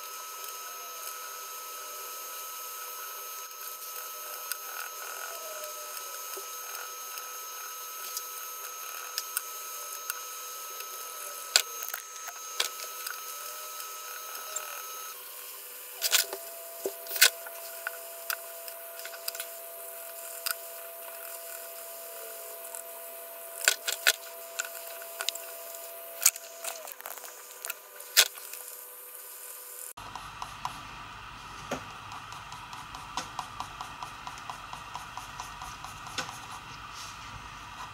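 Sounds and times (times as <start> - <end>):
pencil tapping and scratching on paper: 31.7 - 36.8.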